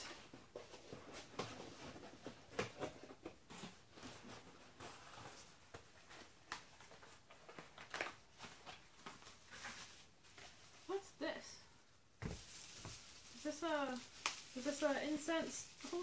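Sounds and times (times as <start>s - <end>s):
cardboard rustles: 0.0s - 10.8s, 12.2s - 16.0s
light taps and scuffs: 12.2s - 13.1s.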